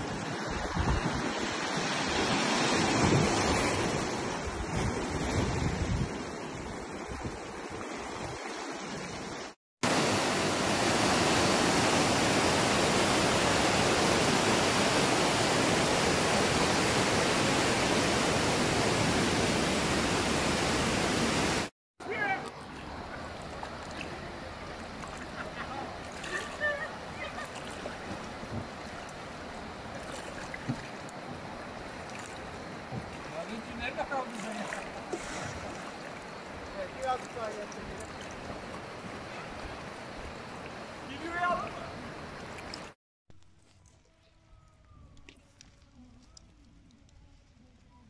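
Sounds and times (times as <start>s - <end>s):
wind buffeting microphone: 0.0s - 1.6s, 2.8s - 8.4s
waves on rocky shore: 0.0s - 43.0s
water cascading between rocks: 9.8s - 21.7s.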